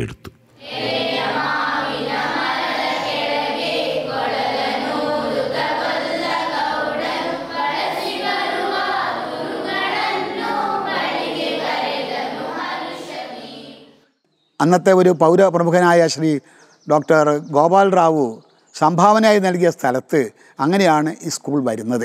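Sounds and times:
choir singing: 0.6s - 14.0s.

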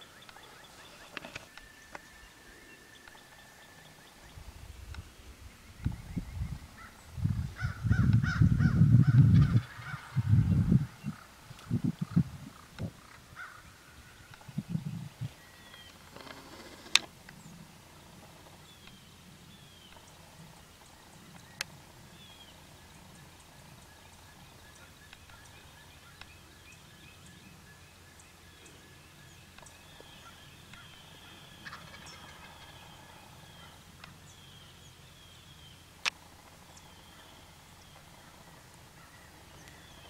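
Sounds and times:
songbirds singing: 0.0s - 40.0s
turkey gobbling: 30.2s - 33.8s.

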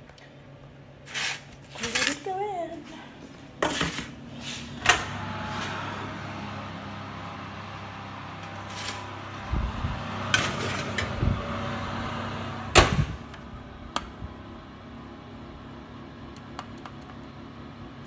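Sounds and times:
oven humming: 2.4s - 18.0s
handling knocks and scrapes: 3.6s - 4.8s.

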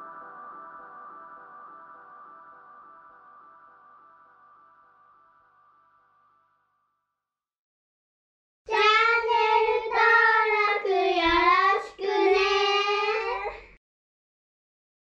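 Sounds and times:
children singing: 8.7s - 13.8s.

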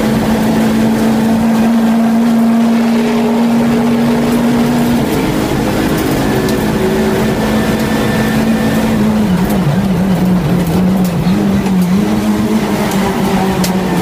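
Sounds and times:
race car engine running hard: 0.0s - 14.0s.

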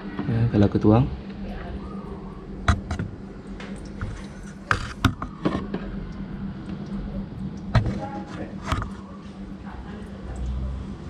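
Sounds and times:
steady low hum: 0.0s - 11.0s
sharp knocks and clicks: 2.7s - 5.9s.

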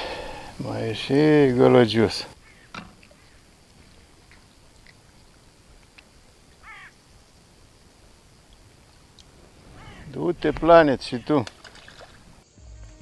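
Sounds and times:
faint ticks: 3.8s - 7.0s, 8.4s - 9.4s
short bird call: 9.7s - 10.2s.

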